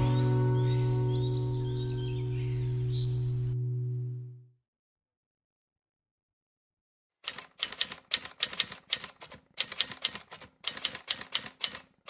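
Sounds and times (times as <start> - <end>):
typewriter keys clacking: 7.2 - 12.0.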